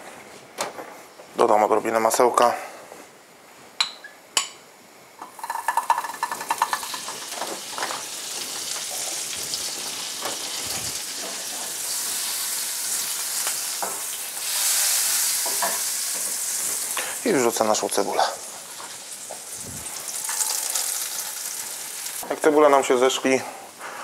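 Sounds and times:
butter sizzling in frying pan: 5.3 - 22.2.

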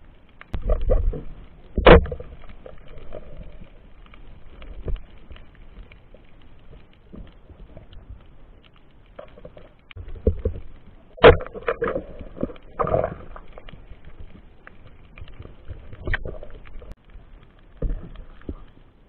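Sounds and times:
muffled underwater knocks and clicks: 0.5 - 3.7, 9.1 - 14.4, 17.7 - 18.8.

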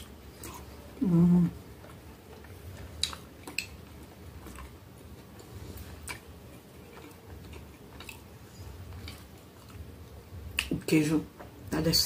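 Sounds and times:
person humming: 1.0 - 1.6.

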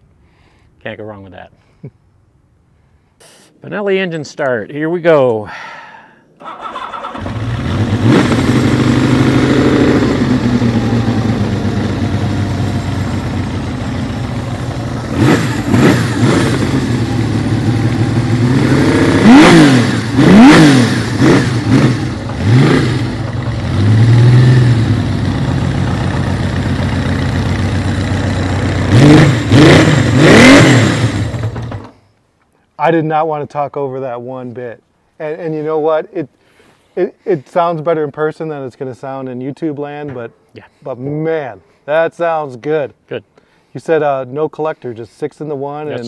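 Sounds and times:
engine revving: 6.4 - 31.9
motorcycle engine idling: 7.2 - 20.2, 21.0 - 29.5.

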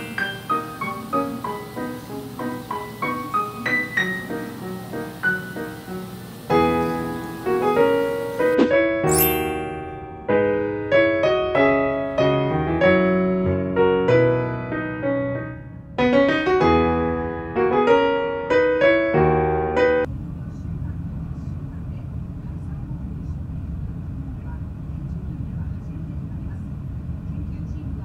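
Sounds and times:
piano music: 0.0 - 20.1.

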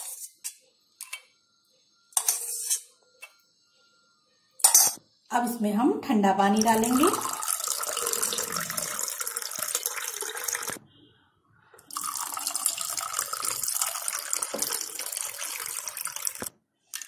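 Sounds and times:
water pouring into a glass: 6.5 - 10.8, 11.9 - 17.0.

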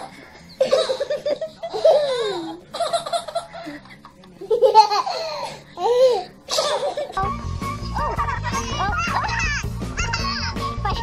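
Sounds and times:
baby laughing: 7.8 - 10.7.

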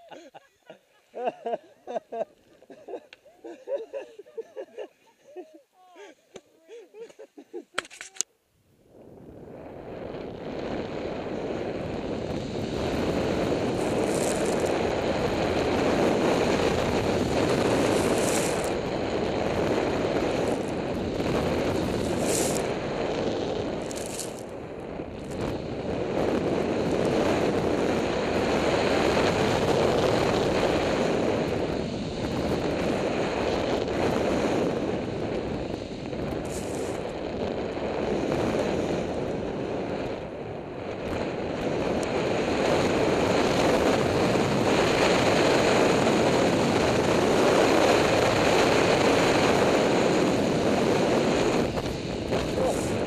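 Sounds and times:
wind rushing over microphone: 8.8 - 53.0
snow hissing under skis: 10.8 - 24.5, 25.2 - 39.2, 42.2 - 53.0.

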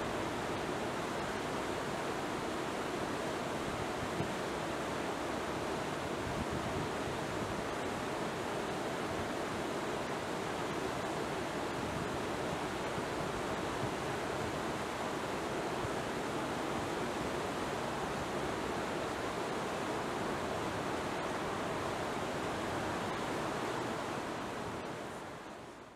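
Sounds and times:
water rushing: 0.0 - 25.7.

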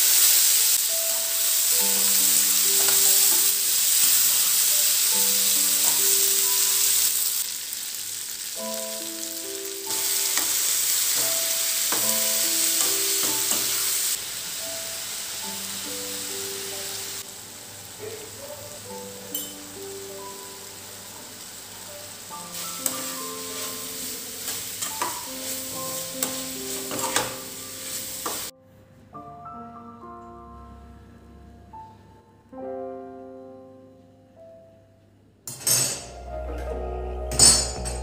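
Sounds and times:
vegetables sizzling in oil: 0.0 - 28.5
soft instrumental music: 0.6 - 7.5, 8.5 - 38.0
spatula clinking against pan: 19.3 - 19.6, 22.8 - 25.3.

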